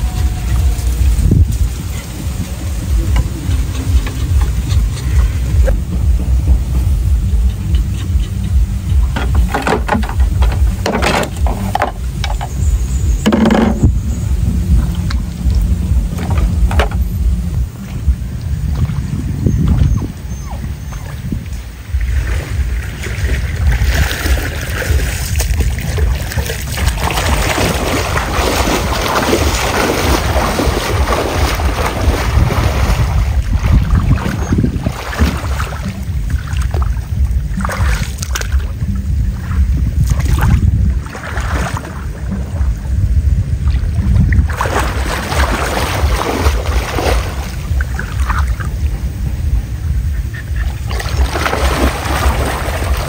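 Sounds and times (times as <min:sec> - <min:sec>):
water sloshing and splashing: 0:00.0 - 0:53.0
wind buffeting microphone: 0:00.0 - 0:53.0.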